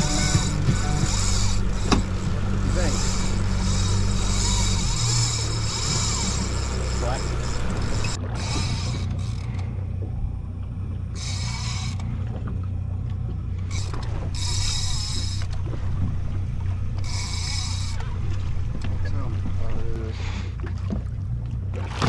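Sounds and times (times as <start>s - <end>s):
fishing reel high-pitched bursts: 0.0s - 9.1s, 11.2s - 12.0s, 13.7s - 15.5s, 17.0s - 18.0s
outboard motor idling: 0.0s - 22.0s.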